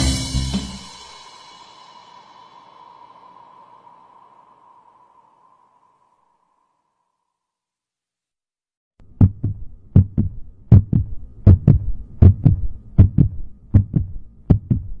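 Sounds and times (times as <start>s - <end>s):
heartbeat thumps: 9.0s - 15.0s.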